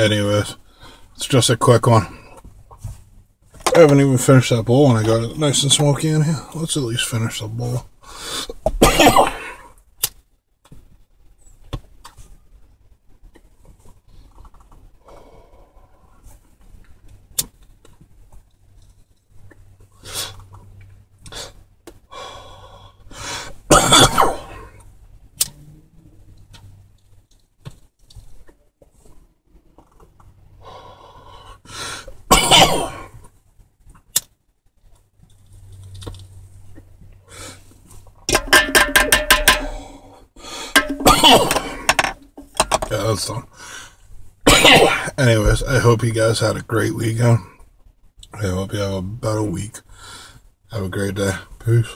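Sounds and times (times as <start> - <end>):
person breathing: 8.0 - 8.6, 15.0 - 16.2, 21.4 - 23.6, 30.6 - 32.2, 39.6 - 40.9, 43.5 - 44.1, 49.9 - 50.5
man coughing hard: 8.7 - 9.6, 23.7 - 24.6, 32.3 - 33.1, 40.8 - 42.1, 44.5 - 45.1.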